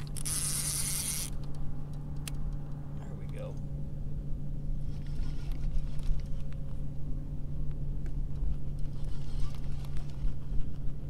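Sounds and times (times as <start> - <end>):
fishing reel ticking: 0.0 - 1.5
low hum: 0.0 - 11.0.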